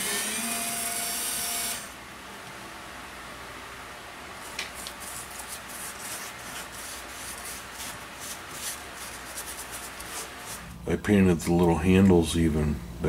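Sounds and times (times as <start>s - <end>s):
paint brush strokes on wood: 4.8s - 10.7s.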